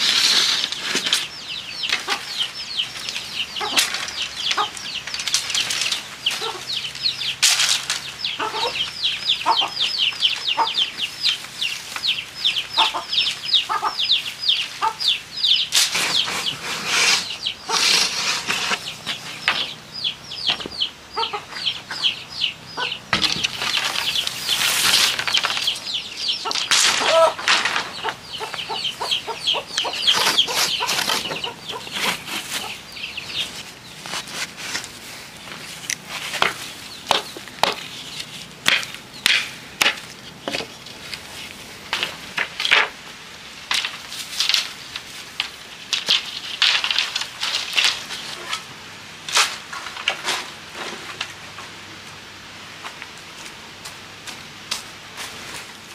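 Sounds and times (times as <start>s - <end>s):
birds cheeping: 0.0s - 42.2s.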